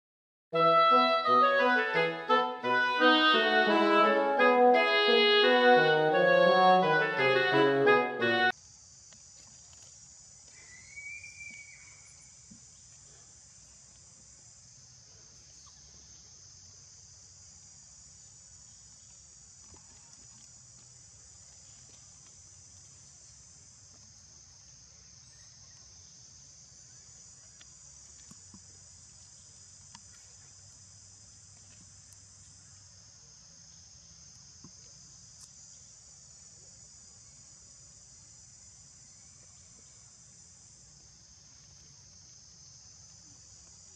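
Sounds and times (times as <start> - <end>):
insects droning: 0.6 - 43.9.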